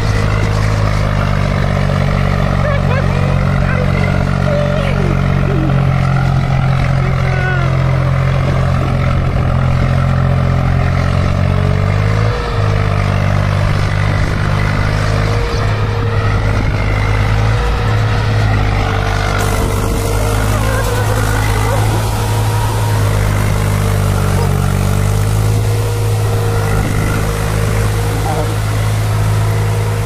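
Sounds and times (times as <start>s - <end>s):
tractor diesel engine under load: 0.0s - 30.0s.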